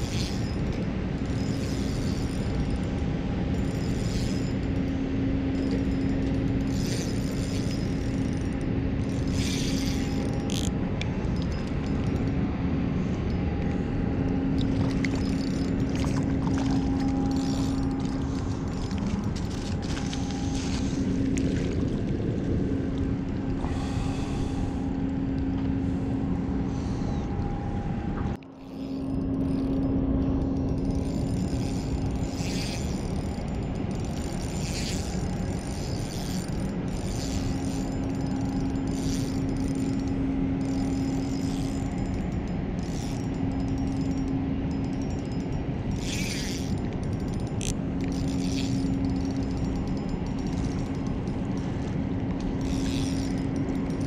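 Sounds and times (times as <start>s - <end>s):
boat engine drone: 0.0s - 54.0s.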